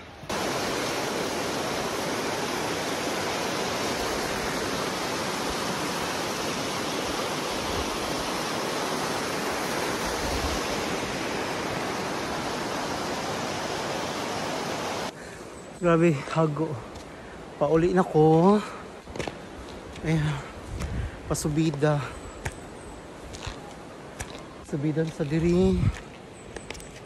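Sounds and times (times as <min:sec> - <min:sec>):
river rushing over rapids: 0:00.2 - 0:15.2.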